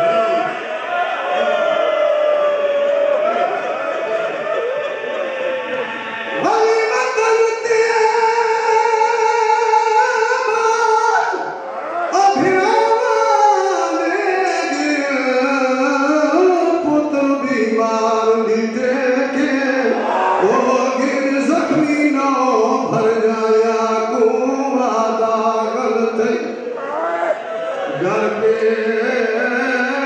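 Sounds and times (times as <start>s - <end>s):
man chanting verse: 5.7s - 11.5s, 12.1s - 30.0s.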